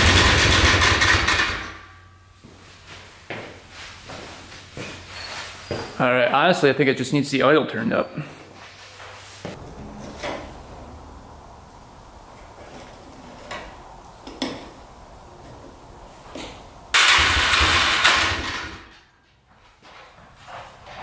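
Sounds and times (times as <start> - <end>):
atv engine running: 0.0 - 2.0, 9.5 - 18.8.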